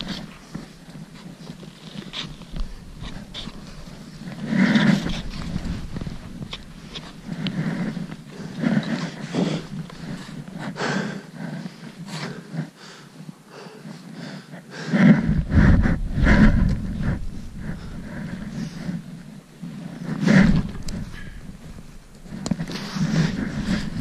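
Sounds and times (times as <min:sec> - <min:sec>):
person breathing hard: 0:02.0 - 0:24.0
low rumbles on microphone: 0:02.3 - 0:10.6, 0:15.1 - 0:24.0
footsteps in snow: 0:15.0 - 0:24.0.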